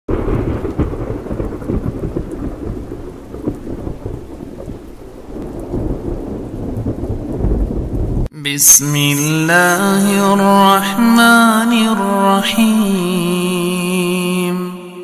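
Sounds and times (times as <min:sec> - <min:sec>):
heavy rain: 0:00.1 - 0:08.3
rumbling thunder: 0:00.1 - 0:08.3
sharp thunder cracks: 0:00.1 - 0:08.3.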